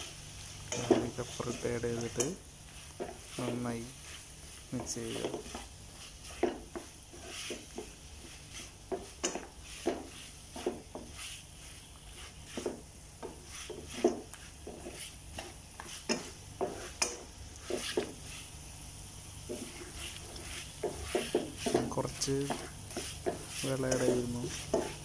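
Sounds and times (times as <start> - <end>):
utensil scraping a pan: 0.0 - 18.6, 19.4 - 25.0
chicken frying in a pan: 0.0 - 25.0.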